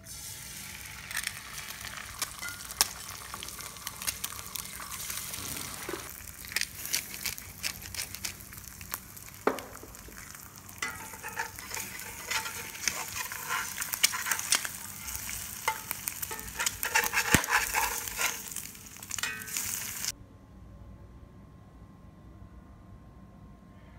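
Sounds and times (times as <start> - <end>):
eggs sizzling and popping: 0.0 - 20.1
metal spatula scraping: 10.8 - 20.1.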